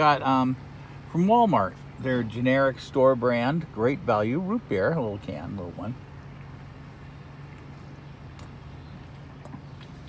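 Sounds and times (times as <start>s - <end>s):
low hum in car cabin: 0.0s - 10.0s.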